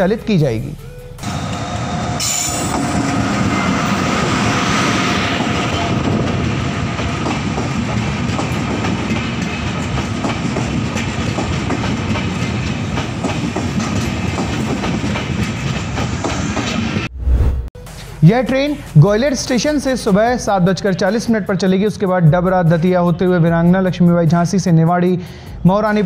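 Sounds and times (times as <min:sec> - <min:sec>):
passenger train passing: 0:01.2 - 0:17.3
wheels clicking over rail joints: 0:05.9 - 0:16.1.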